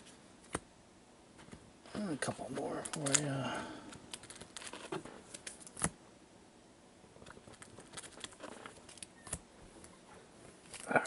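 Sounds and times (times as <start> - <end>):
trading cards rustling: 2.5 - 5.9, 7.2 - 9.4.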